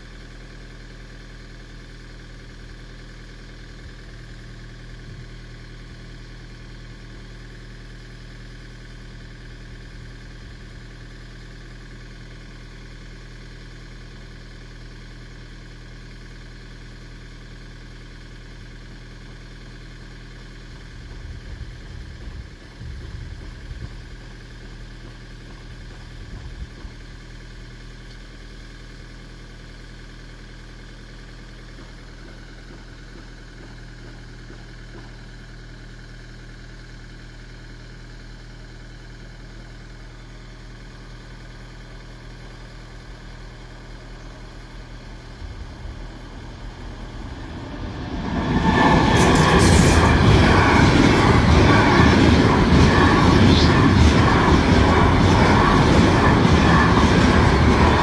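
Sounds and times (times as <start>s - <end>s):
freight train rumbling past: 43.7s - 58.0s.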